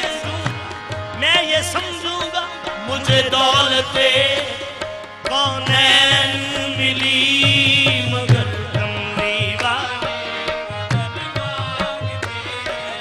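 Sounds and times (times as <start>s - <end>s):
man singing: 0.0s - 13.0s
sustained harmonium: 0.0s - 13.0s
tabla rhythm: 0.0s - 13.0s.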